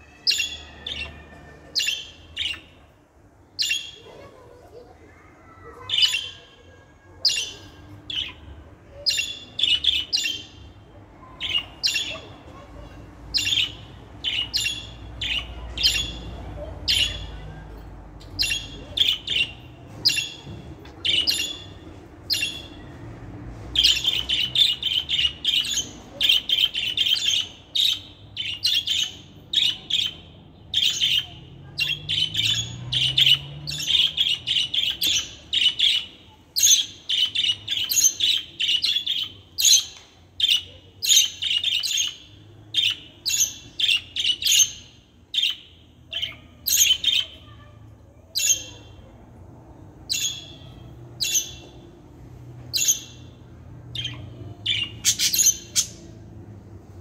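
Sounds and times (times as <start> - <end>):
budgerigars chirping: 53.9 - 56.0.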